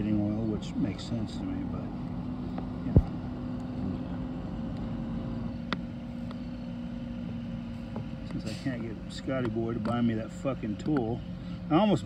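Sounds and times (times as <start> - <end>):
motor humming: 0.0 - 12.0.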